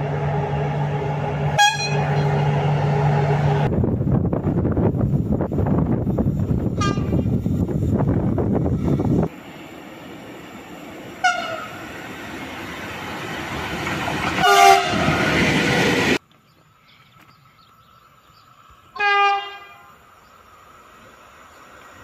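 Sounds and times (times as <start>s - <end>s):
train rumbling past: 0.0s - 16.2s, 17.5s - 22.0s
train horn blasts: 1.4s - 3.7s, 6.8s - 7.2s, 11.2s - 11.8s, 14.4s - 15.3s, 19.0s - 20.0s.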